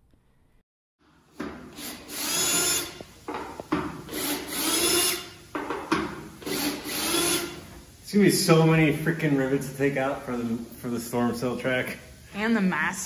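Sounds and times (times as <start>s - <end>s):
cordless drill drilling metal: 1.7s - 3.0s, 4.1s - 5.4s, 6.4s - 7.6s.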